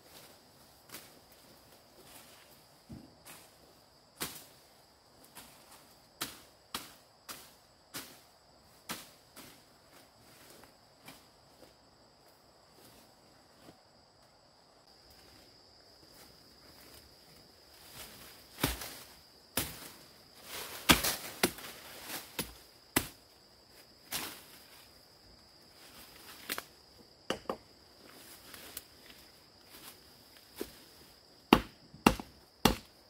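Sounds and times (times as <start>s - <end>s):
insects droning: 0.0s - 33.0s
wood chopping strikes: 31.5s - 32.9s.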